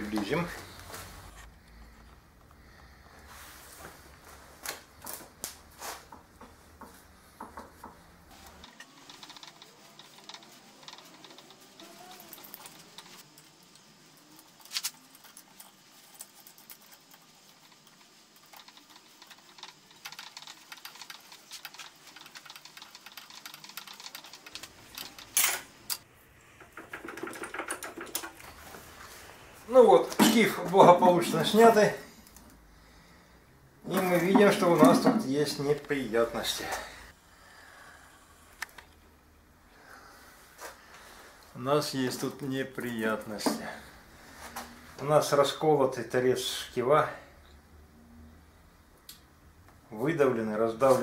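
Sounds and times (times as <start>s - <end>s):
metallic clicks and knocks: 26.6s - 28.5s.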